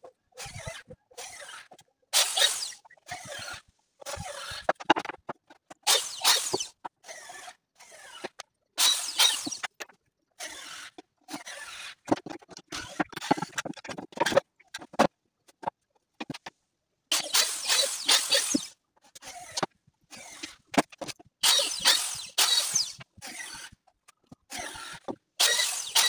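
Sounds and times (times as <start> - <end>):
electric drill drilling into wood: 0.4 - 4.7, 5.9 - 9.7, 17.1 - 20.6, 21.4 - 23.7, 24.5 - 26.0.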